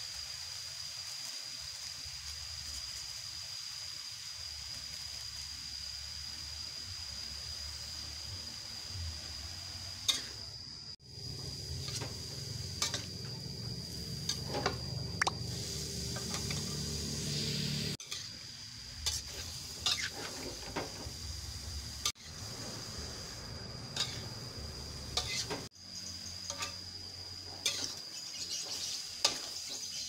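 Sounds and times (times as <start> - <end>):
food sizzling in wok: 0.0 - 30.0
spatula clinking and scraping pan: 19.0 - 21.0, 24.0 - 24.3, 25.2 - 25.7, 26.4 - 26.9, 27.6 - 30.0.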